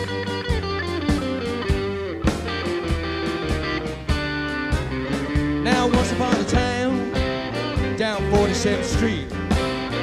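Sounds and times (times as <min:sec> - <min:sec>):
drum beat: 0:00.0 - 0:10.0
guitar: 0:00.0 - 0:10.0
man singing: 0:05.6 - 0:07.3, 0:07.9 - 0:09.4.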